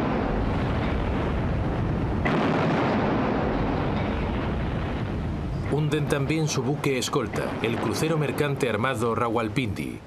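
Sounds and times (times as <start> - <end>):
gunfire rumble: 0.0 - 6.1
explosion blast: 0.0 - 8.8.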